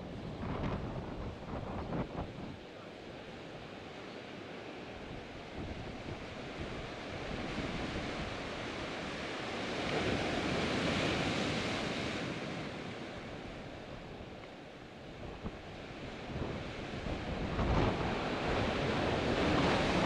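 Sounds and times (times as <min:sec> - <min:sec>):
wind buffeting microphone: 0:00.0 - 0:02.6, 0:15.0 - 0:20.0
surf washing over rocks: 0:00.3 - 0:20.0.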